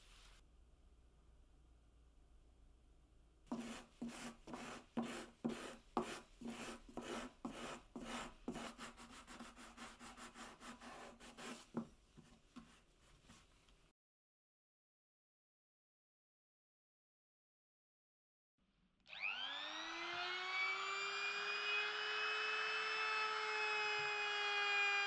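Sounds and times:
sanding sponge scrubbing wood: 0:03.5 - 0:11.8.

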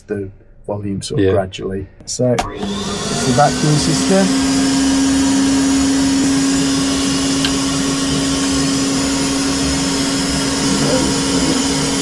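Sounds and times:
vacuum airy hiss: 0:02.5 - 0:12.0.

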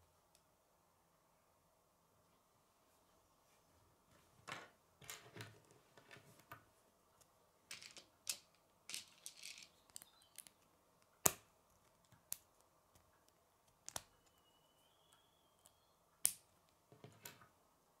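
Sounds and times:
plastic pieces clicking and rattling: 0:07.7 - 0:10.6.

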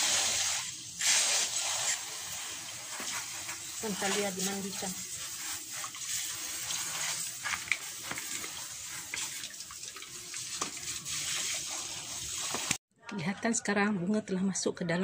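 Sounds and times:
hose water spraying and splashing: 0:00.0 - 0:12.8.

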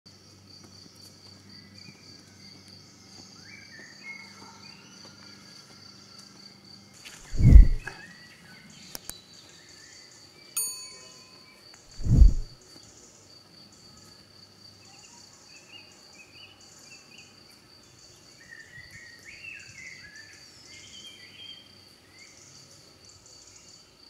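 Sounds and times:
faint chirping calls: 0:07.2 - 0:14.1
deep thump: 0:07.3 - 0:07.9
bell-like chime: 0:10.6 - 0:11.6.

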